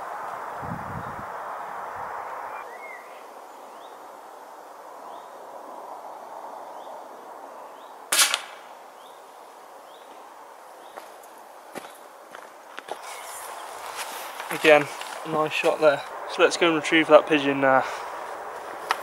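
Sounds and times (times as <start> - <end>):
air rifle shot crack: 8.1 - 8.7.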